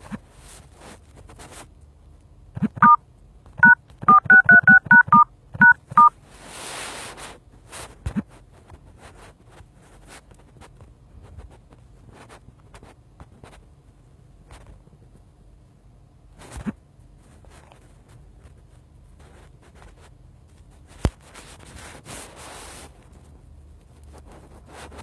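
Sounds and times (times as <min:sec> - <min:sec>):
phone keypad tones: 0:02.6 - 0:03.0, 0:03.6 - 0:06.1.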